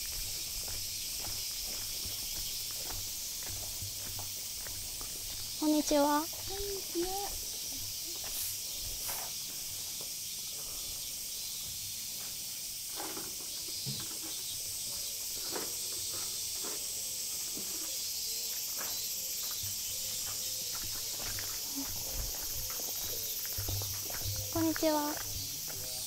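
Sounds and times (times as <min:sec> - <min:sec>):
high-pitched insect drone: 0:00.0 - 0:11.6, 0:12.2 - 0:26.0
faint footsteps or knocks: 0:00.1 - 0:10.2, 0:18.8 - 0:26.0.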